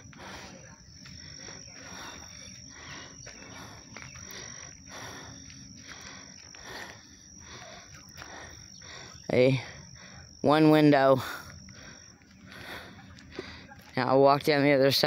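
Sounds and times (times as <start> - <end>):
high-pitched insect trill: 0.0 - 15.0
pulsing insect chorus: 0.0 - 15.0.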